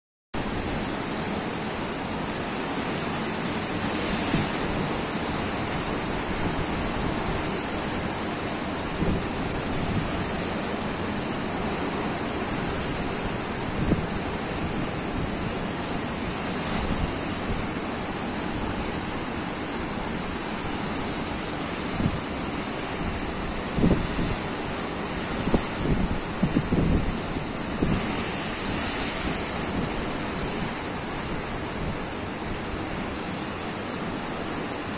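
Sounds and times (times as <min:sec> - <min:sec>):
wind buffeting microphone: 0:21.6 - 0:32.1.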